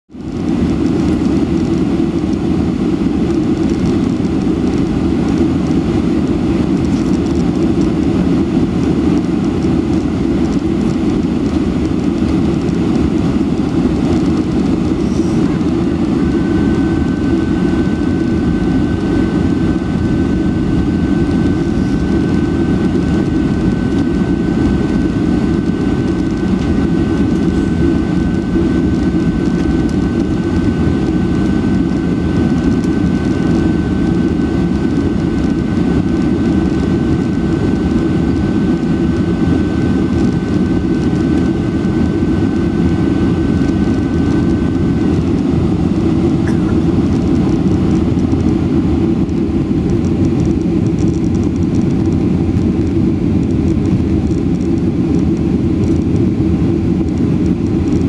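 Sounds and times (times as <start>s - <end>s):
airplane cabin rumble: 0.1s - 58.0s
thin steady whine: 0.1s - 58.0s.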